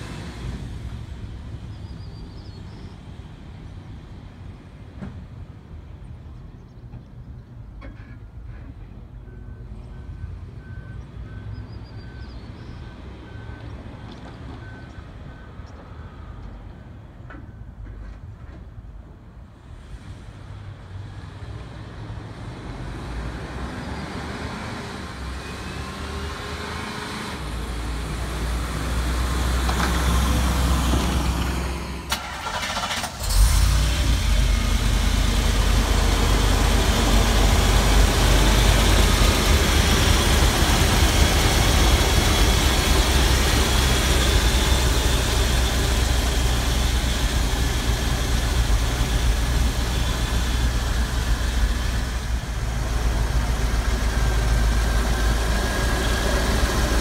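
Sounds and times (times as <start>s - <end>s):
truck engine driving up: 22.2s - 57.0s
truck engine idling: 28.5s - 57.0s.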